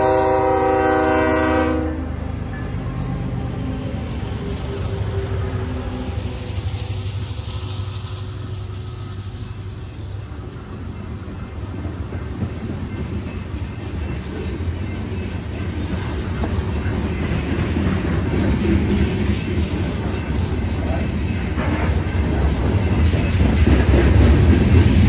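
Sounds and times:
freight train rumbling past: 0:00.0 - 0:25.0
wheels clicking over rail joints: 0:10.4 - 0:25.0.

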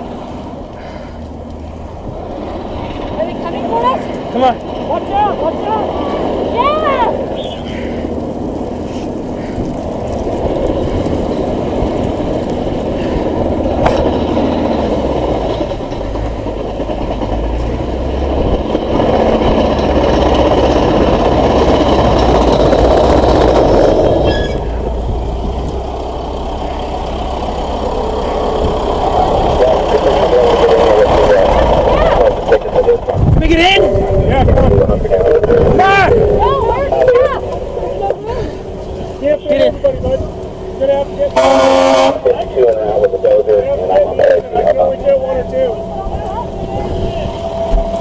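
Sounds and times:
roaring wildfire: 0:00.0 - 0:48.0
vehicle engine: 0:00.0 - 0:48.0
wind: 0:00.0 - 0:48.0.

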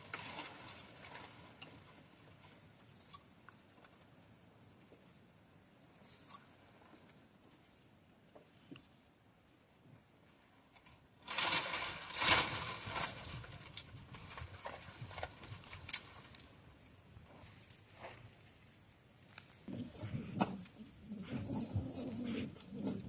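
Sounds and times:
dry palm fronds rustling: 0:00.0 - 0:04.2, 0:10.7 - 0:23.0.

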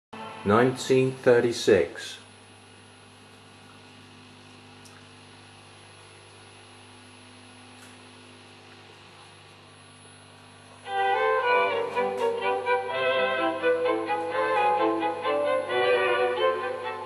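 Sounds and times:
violin music: 0:00.2 - 0:00.8, 0:10.8 - 0:17.0
television mains hum: 0:00.2 - 0:17.0.

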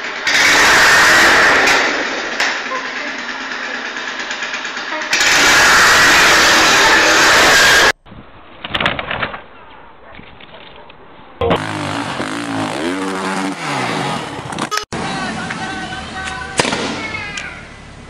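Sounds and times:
scooter engine running: 0:00.0 - 0:08.0.

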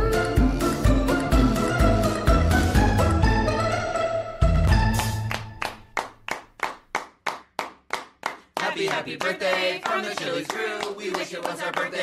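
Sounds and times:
people clapping together: 0:04.9 - 0:12.0
sharp rhythmic claps: 0:04.9 - 0:12.0.

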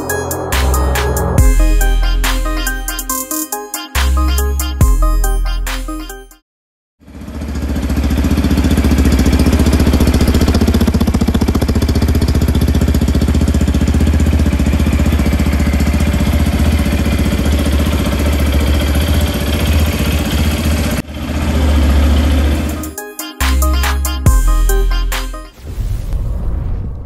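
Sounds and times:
motorcycle engine idling: 0:07.0 - 0:22.8.

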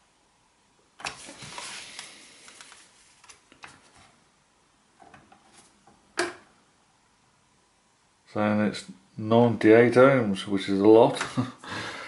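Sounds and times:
gloved hands rustling: 0:01.1 - 0:04.2.

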